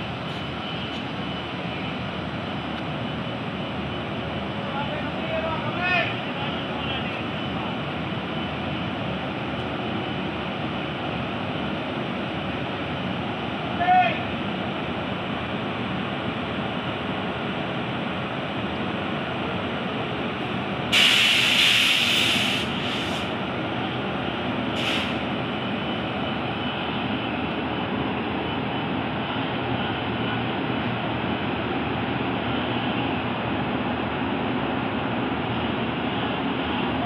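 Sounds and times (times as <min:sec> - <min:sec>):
compressed air hiss: 0:20.9 - 0:23.3, 0:24.8 - 0:25.2.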